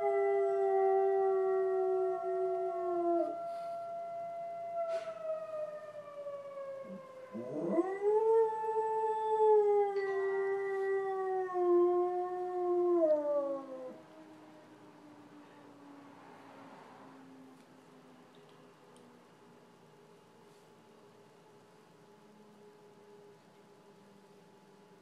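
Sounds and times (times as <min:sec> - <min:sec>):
dog howling: 0:00.0 - 0:14.0
police sirens: 0:00.0 - 0:20.0.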